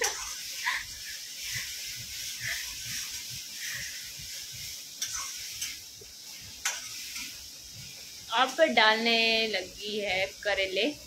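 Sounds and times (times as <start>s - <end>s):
spoon scraping pan: 0.0s - 8.6s
oil sizzling: 0.0s - 11.0s
spoon clicking against pan: 6.6s - 7.3s.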